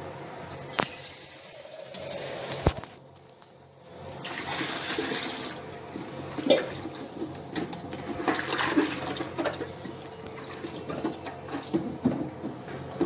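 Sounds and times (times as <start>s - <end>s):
water sloshing and splashing: 4.0s - 12.0s
water pouring into plastic tank: 4.1s - 6.9s, 8.0s - 9.7s.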